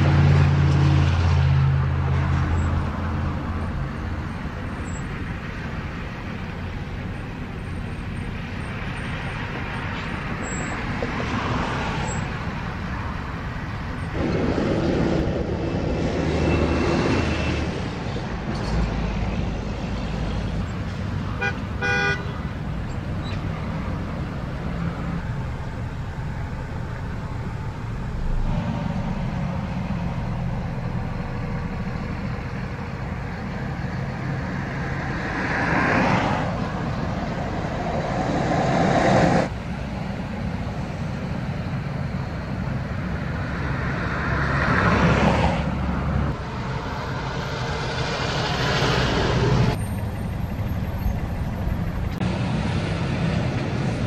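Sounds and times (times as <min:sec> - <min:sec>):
road traffic driving past: 0:00.0 - 0:54.0
vehicle horn toot: 0:21.3 - 0:22.4.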